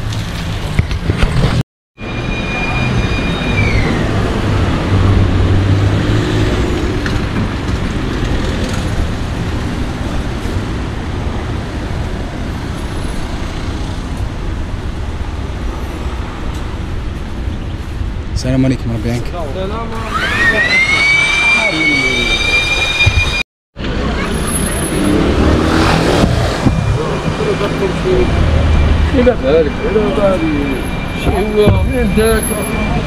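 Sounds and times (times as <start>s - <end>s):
electric blower rushing: 20.0s - 23.2s
high whine dropping in pitch: 20.0s - 23.4s, 24.9s - 32.7s.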